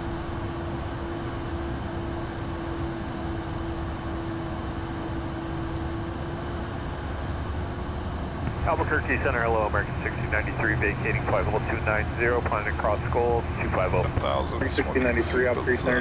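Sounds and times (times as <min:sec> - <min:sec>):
steady hum: 0:00.1 - 0:16.0
air rushing in cockpit: 0:06.2 - 0:16.0.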